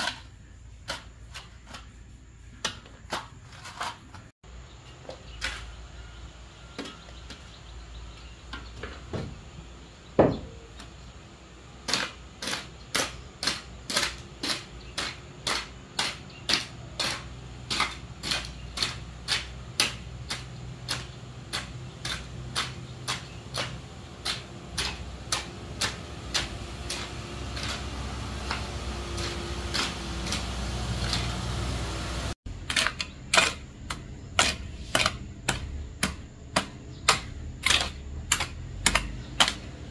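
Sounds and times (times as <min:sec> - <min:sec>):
sharp knocks: 0:10.2 - 0:10.6.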